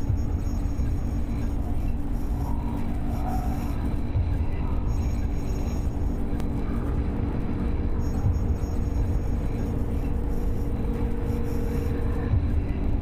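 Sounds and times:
steady low rumble: 0:00.0 - 0:13.0
faint held tone: 0:07.9 - 0:12.3.

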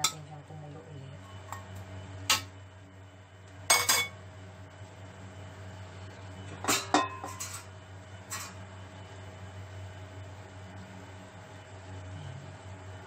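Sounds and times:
utensil clinking on a metal wok: 0:00.0 - 0:00.3, 0:03.7 - 0:04.2, 0:06.6 - 0:07.7
steady low hum: 0:00.0 - 0:13.0.

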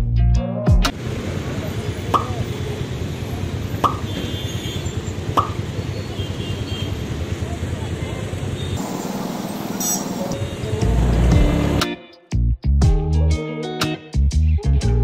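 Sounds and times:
street traffic noise: 0:00.9 - 0:12.0
guitar music: 0:09.6 - 0:15.0.

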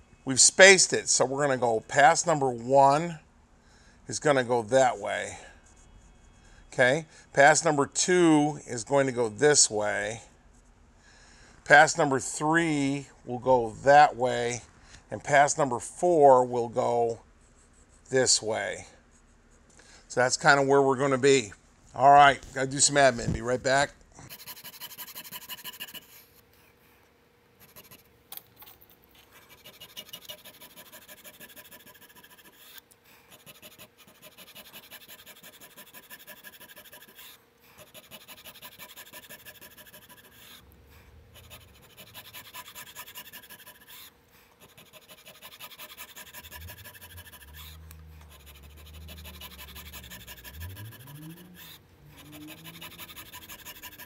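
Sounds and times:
file rasping on wood: 0:24.3 - 0:26.1, 0:29.5 - 0:40.6, 0:41.3 - 0:54.0.

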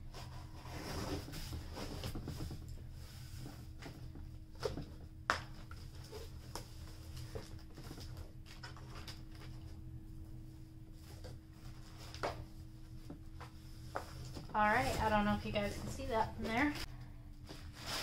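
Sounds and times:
cardboard and tape rustling: 0:05.6 - 0:09.8, 0:11.0 - 0:18.0.

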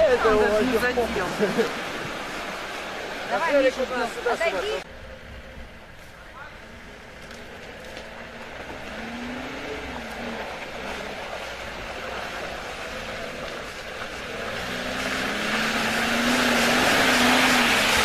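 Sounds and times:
mud and water splashing: 0:00.0 - 0:18.0
car engine revving: 0:06.6 - 0:18.0.

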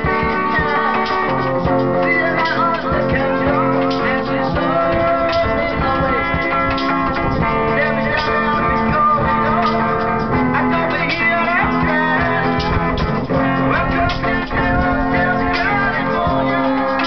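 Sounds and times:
guitar plucked and strummed: 0:00.0 - 0:17.0
men singing: 0:00.0 - 0:17.0.

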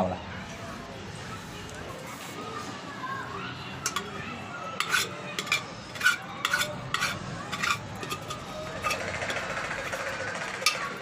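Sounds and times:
spoon scraping rattle: 0:04.8 - 0:11.0.

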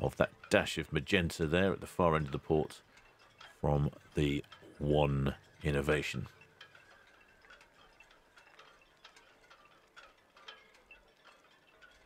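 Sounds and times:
soft ticking percussion: 0:00.0 - 0:12.0.

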